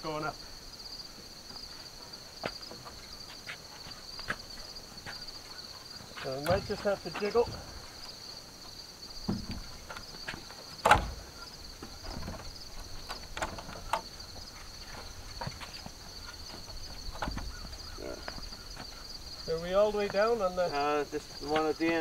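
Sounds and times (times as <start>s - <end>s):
crickets chirping: 0.0s - 22.0s
wooden knocks and bumps: 6.2s - 8.2s, 9.2s - 19.0s.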